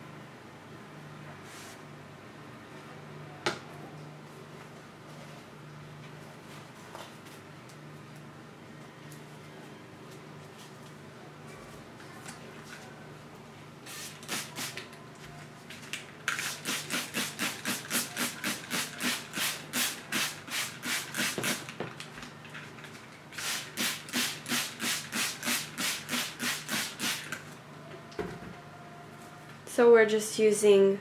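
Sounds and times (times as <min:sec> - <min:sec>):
spray bottle squirting: 0:13.9 - 0:14.8, 0:16.3 - 0:21.7, 0:23.4 - 0:27.3.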